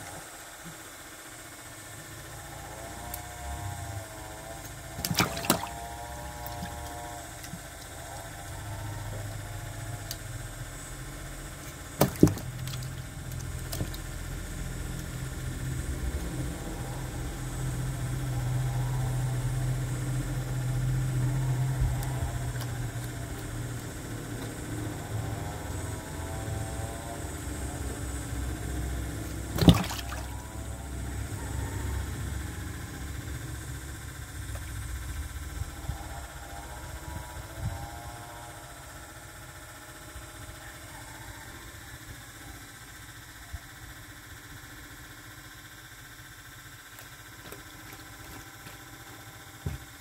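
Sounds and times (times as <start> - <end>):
low steady hum: 0.0 - 50.0
crocodile jaws snapping: 4.6 - 7.6, 11.7 - 14.1, 29.5 - 30.4.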